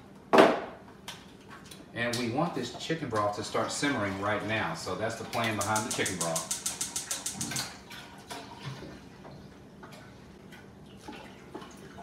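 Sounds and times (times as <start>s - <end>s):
faint clicks and taps: 5.4s - 7.7s
burner igniter clicking: 5.6s - 7.7s.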